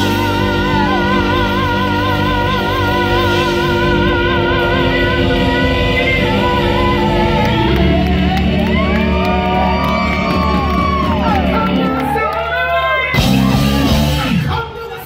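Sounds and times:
backing singers: 0.0s - 14.5s
electric guitar bending notes: 0.0s - 14.5s
drums: 0.0s - 15.0s
keyboard: 0.0s - 15.0s
audience whooping: 6.2s - 14.5s.

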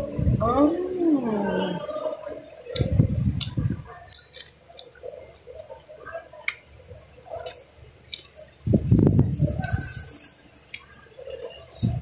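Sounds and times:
wet chewing and squishing: 2.7s - 8.6s.

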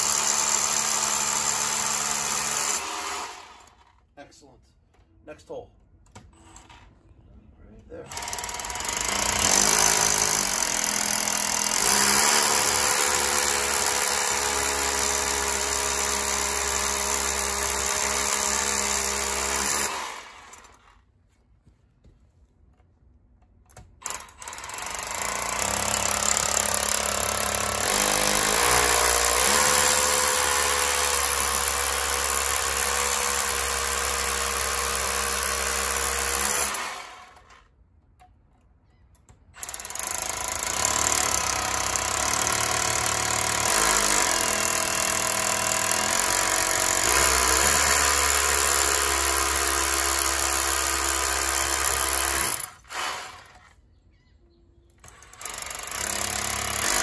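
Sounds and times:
rotary hammer drilling masonry: 0.0s - 4.0s, 8.0s - 20.9s, 23.7s - 37.7s, 39.4s - 53.8s, 55.0s - 57.0s.

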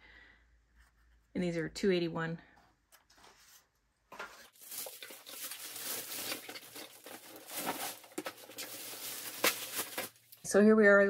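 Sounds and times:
plastic bag crinkling: 4.4s - 10.4s.

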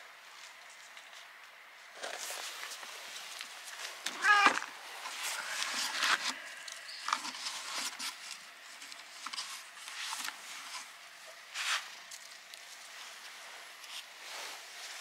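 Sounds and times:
rustling and scuffing on leaves: 9.4s - 15.0s.

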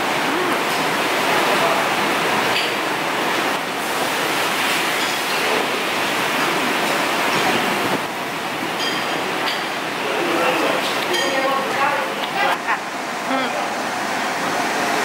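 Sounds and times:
crowd murmur in dining hall: 0.0s - 3.6s, 9.0s - 15.0s.

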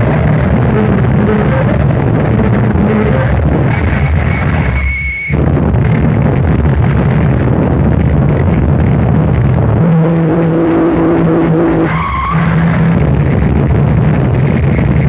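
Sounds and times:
dense distorted noise music: 0.0s - 15.0s
high whistling tone: 3.8s - 5.4s.

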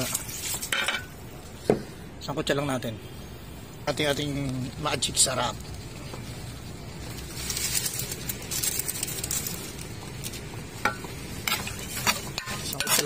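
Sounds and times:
metal spatula scraping pan: 10.9s - 13.0s.

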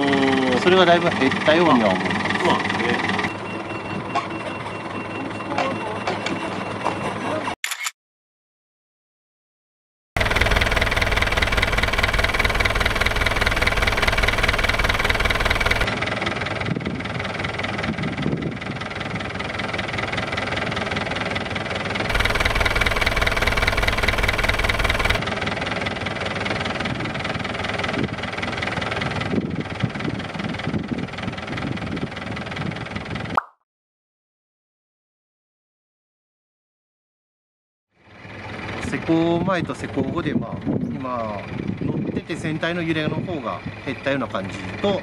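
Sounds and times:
diesel engine idling: 10.2s - 32.9s, 38.0s - 40.0s, 41.3s - 45.0s.

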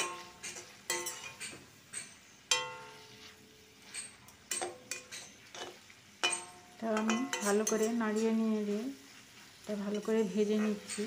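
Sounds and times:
spatula stirring in a pan: 0.0s - 11.0s
spatula knocking on metal pan: 2.5s - 3.0s.

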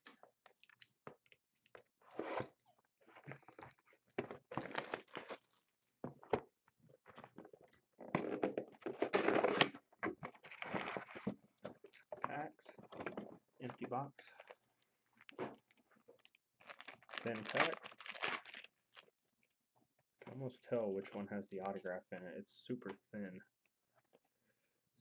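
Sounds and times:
packaging tearing and crumpling: 4.6s - 5.6s, 8.2s - 9.8s, 10.4s - 11.3s, 16.2s - 19.1s.

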